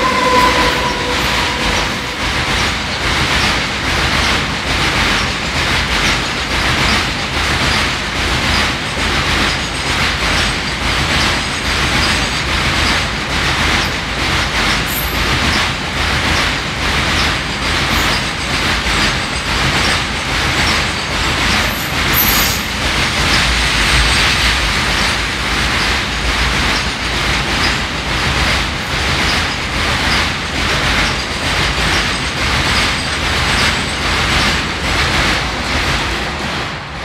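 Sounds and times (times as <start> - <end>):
high-pitched wheel squeal: 0.0 - 3.5
freight train wagons rumbling: 0.0 - 37.0
wheels clacking over rail joints: 2.5 - 36.9.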